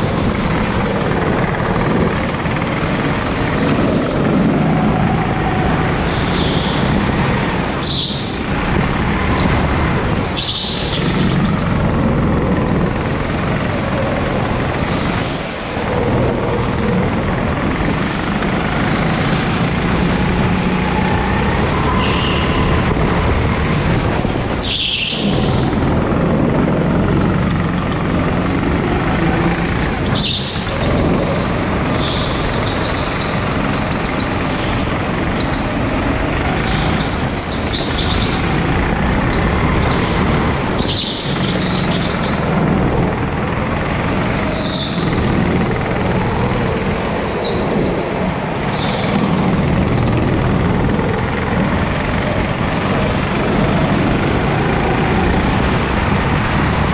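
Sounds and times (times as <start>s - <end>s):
go-kart engine running hard: 0.0s - 56.9s
tyres squealing: 43.3s - 55.6s.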